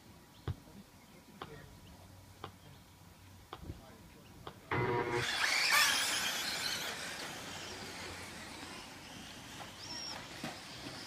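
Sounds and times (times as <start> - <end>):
electric toy truck motors whining: 4.7 - 11.0.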